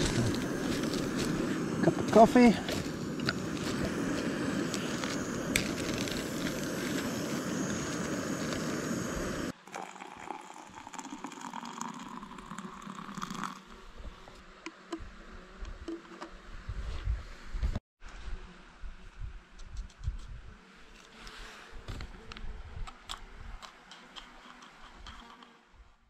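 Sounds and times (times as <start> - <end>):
gas stove burner rushing: 0.0 - 9.5
faint outdoor ambience: 0.0 - 26.0.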